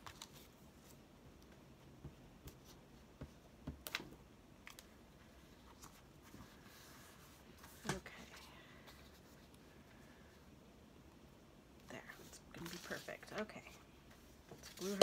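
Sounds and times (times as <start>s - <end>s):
paper rustling: 12.2s - 13.5s.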